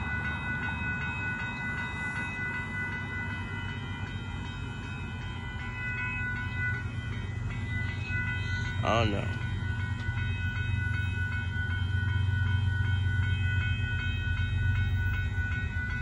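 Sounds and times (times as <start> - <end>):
railroad crossing bell ringing: 0.0 - 16.0
train rumble: 0.0 - 16.0.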